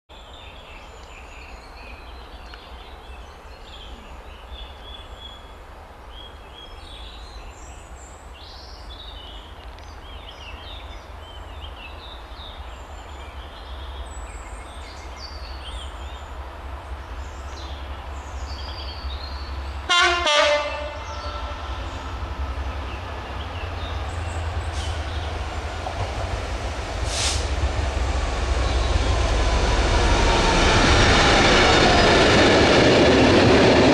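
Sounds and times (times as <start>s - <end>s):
birds singing: 6.1s - 26.5s, 28.5s - 29.4s
diesel locomotive engine: 10.5s - 33.9s
two-tone train horn blast: 19.9s - 22.0s.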